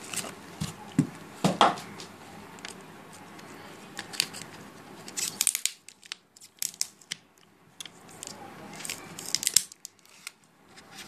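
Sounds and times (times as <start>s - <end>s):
cardboard packaging rustling: 0.0s - 1.1s, 8.0s - 11.0s
plastic wrap crinkling: 8.0s - 11.0s.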